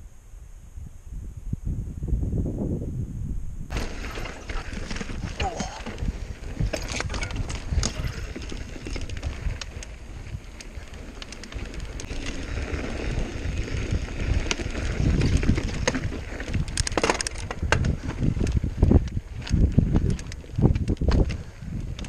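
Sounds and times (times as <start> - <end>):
wind rumbling on microphone: 0.0 - 22.0
bike rattling over rocks: 3.7 - 22.0.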